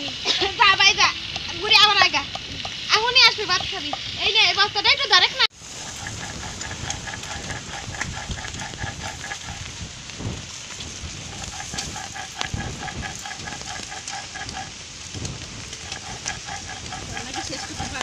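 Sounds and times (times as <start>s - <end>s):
animal call rapid pitched notes: 5.8s - 9.7s, 11.3s - 14.7s, 15.8s - 18.0s.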